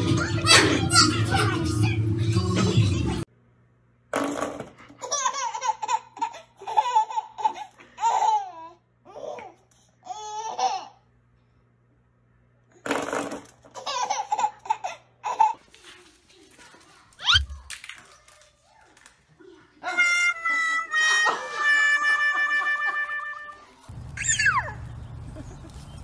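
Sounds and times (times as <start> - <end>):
baby laughing and squealing: 17.2 - 17.6, 24.2 - 24.8.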